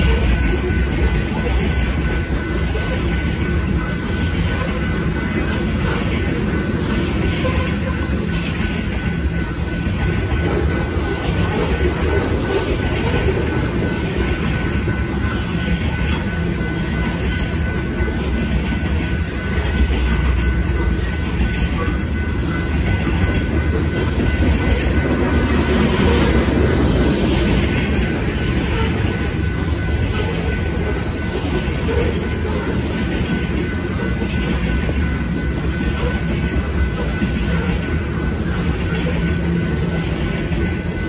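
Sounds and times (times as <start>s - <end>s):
crossing signal bell ringing: 0.0s - 41.0s
freight train rumbling: 0.0s - 41.0s
train wheels clacking on rails: 0.0s - 41.0s.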